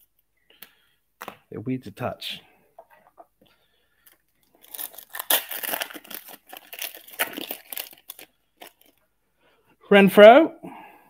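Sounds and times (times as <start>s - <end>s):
foil wrapper tearing and crinkling: 4.5s - 9.0s.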